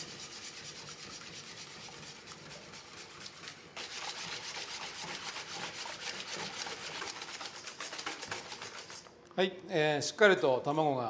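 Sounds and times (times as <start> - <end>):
whisk beating in metal bowl: 0.0 - 9.1.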